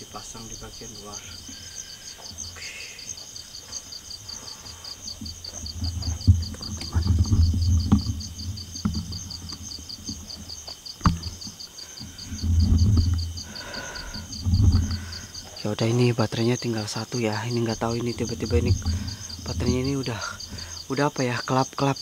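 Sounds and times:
night insects trilling: 0.0s - 22.0s
microphone handling rumble: 5.2s - 10.4s, 11.0s - 15.4s, 17.7s - 20.8s.

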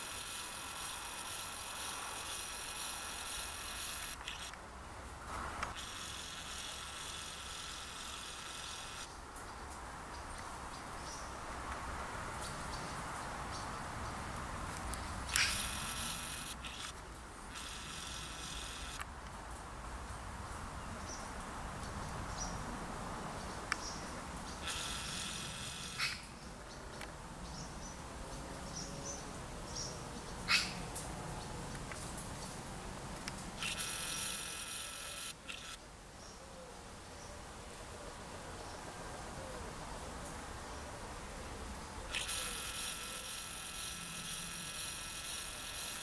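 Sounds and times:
insect buzzing: 0.0s - 4.6s, 5.6s - 9.2s, 15.2s - 19.0s, 24.6s - 26.4s, 33.6s - 35.8s, 42.1s - 46.0s
sharp click: 14.8s - 17.0s.

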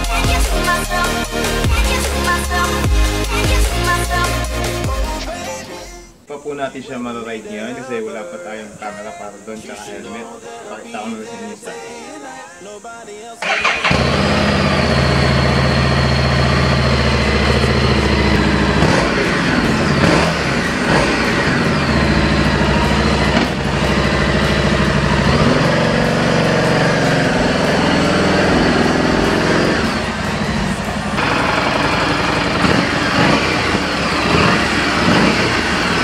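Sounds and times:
motorcycle engine idling: 13.4s - 36.0s.

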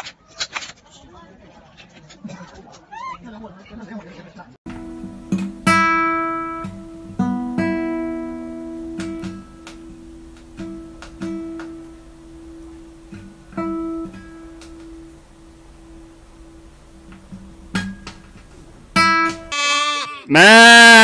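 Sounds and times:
acoustic guitar plucking: 4.7s - 19.6s.

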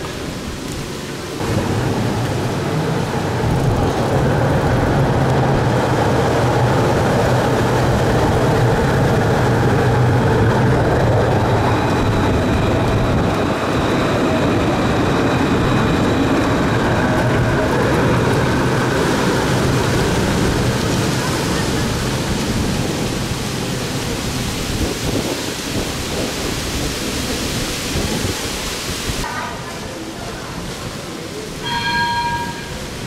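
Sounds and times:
tram wheels rumbling on rail: 0.0s - 33.0s.

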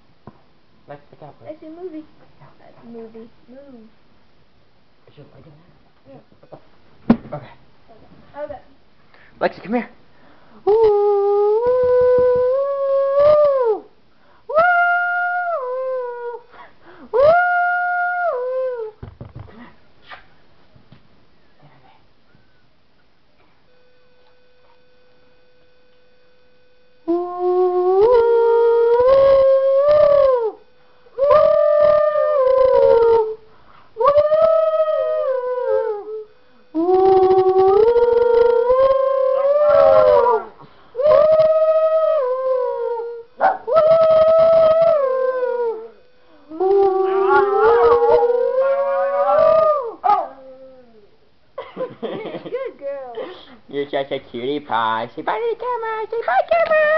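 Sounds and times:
dog howling: 10.7s - 13.9s, 14.5s - 16.5s, 17.2s - 19.0s, 27.1s - 30.6s, 31.2s - 33.4s, 34.0s - 51.2s
faint steady tone: 21.3s - 53.7s
person making a tune: 36.8s - 40.3s.

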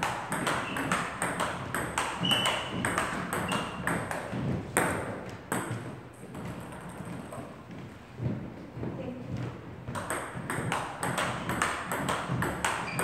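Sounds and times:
short high squeaks: 2.2s - 2.8s.

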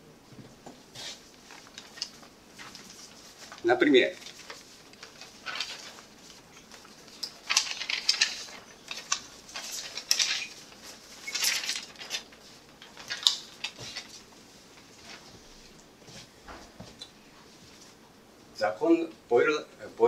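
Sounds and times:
paper rustling: 0.9s - 16.3s.

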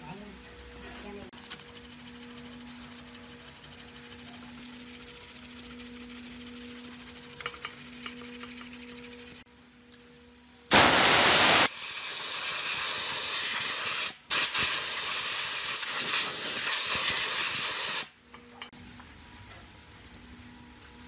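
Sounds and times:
compressed air blow gun hissing: 10.7s - 18.1s.

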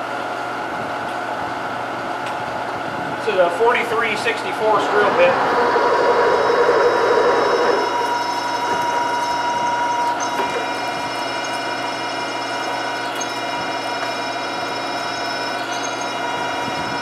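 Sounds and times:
milling machine whine: 0.3s - 17.0s
drill bit cutting aluminum: 4.8s - 17.0s.

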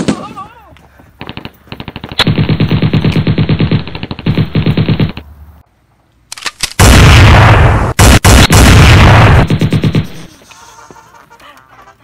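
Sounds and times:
machine-gun fire: 1.3s - 5.2s, 6.8s - 10.2s
single gunshots: 6.6s - 10.2s.

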